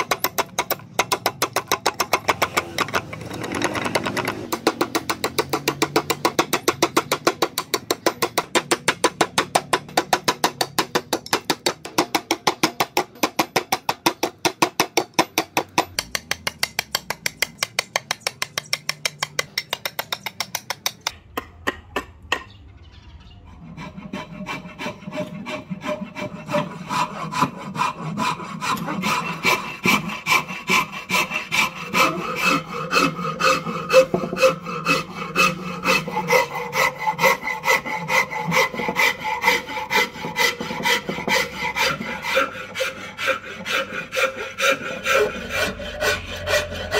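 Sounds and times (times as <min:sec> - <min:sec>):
hand saw cutting wood: 0:00.0 - 0:21.1, 0:23.6 - 0:46.9
steel rasp strokes on wood: 0:23.6 - 0:46.9.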